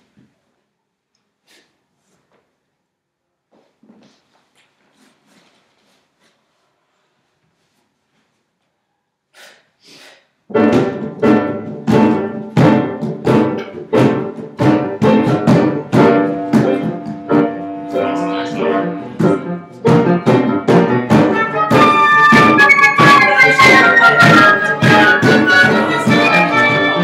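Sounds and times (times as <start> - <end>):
wind ensemble playing chords: 21.2 - 27.0.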